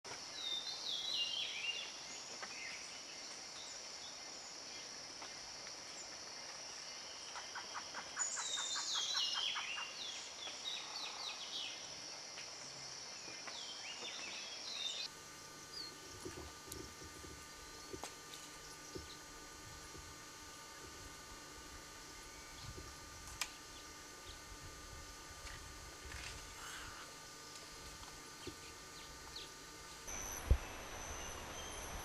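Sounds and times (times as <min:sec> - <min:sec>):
steady high hiss: 0:00.2 - 0:32.0
birds calling: 0:28.9 - 0:32.0.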